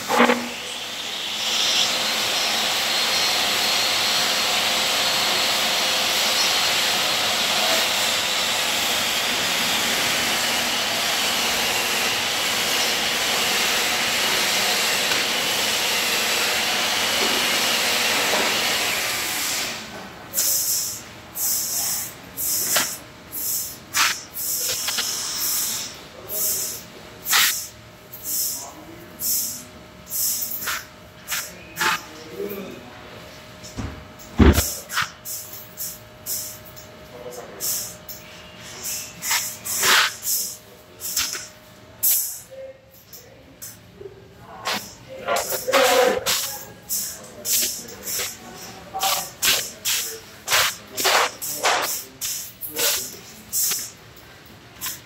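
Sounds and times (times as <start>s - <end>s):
machinery hissing: 44.5s - 54.0s.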